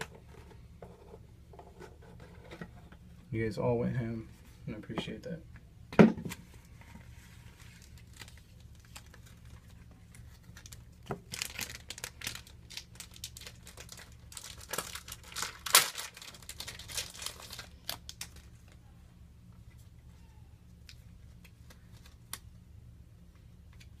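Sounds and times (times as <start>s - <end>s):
plastic shrink-wrap crinkling and tearing: 7.5s - 18.7s.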